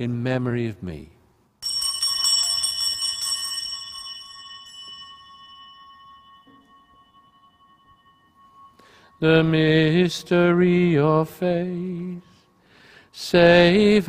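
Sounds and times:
small altar bells ringing: 1.6s - 14.0s.

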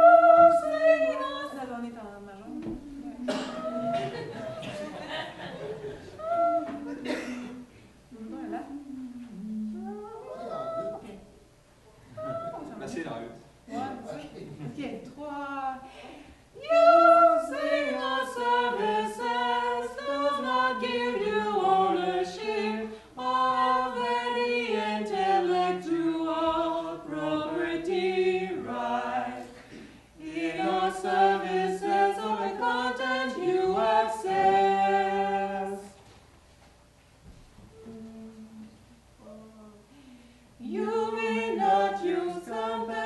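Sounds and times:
a cappella choir singing: 0.0s - 1.9s, 2.6s - 11.3s, 16.5s - 36.0s, 40.5s - 43.0s.

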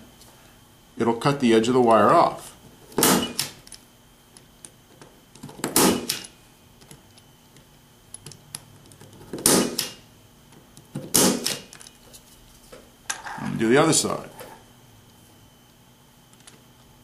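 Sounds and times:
punchdown tool snapping: 5.7s - 6.3s, 9.4s - 10.0s, 11.1s - 11.7s.

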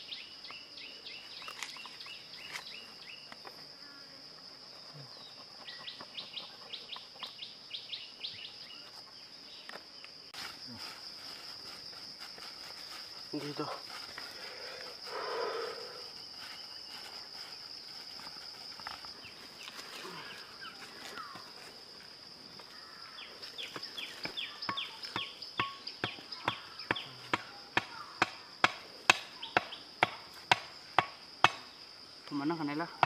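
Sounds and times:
insects droning: 0.0s - 33.0s
rustle: 0.0s - 33.0s
wooden club pounding stake: 24.2s - 31.6s.

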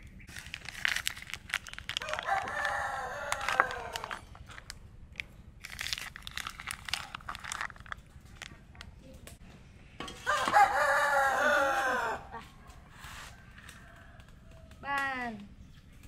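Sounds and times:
rooster crowing: 2.0s - 4.2s, 10.2s - 12.3s.

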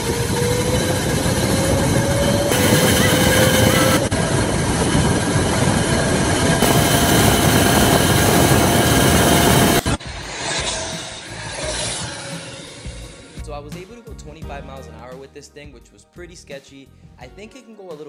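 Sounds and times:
electric motor and chain whine: 0.0s - 10.0s
wind rush: 0.0s - 13.5s.

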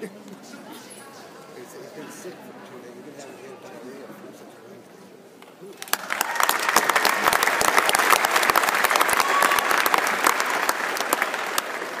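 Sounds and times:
spectators applauding: 5.7s - 12.0s.

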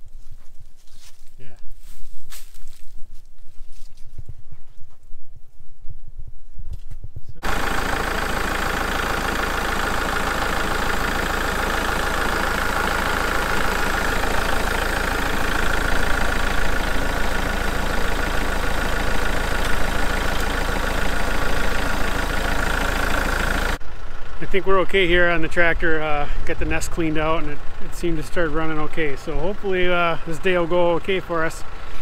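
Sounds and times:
tractor diesel engine idling: 7.4s - 32.0s.

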